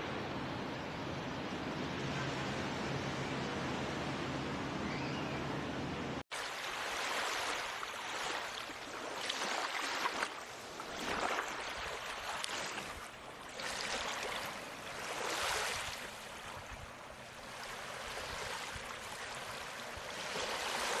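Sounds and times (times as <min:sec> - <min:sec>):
rushing water: 0:06.3 - 0:21.0.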